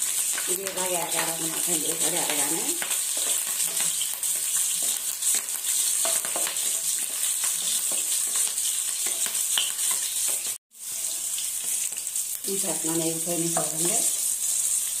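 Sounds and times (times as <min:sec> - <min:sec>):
chillies and onion sizzling in oil: 0:00.0 - 0:15.0
wooden spatula scraping and tapping: 0:02.8 - 0:12.0.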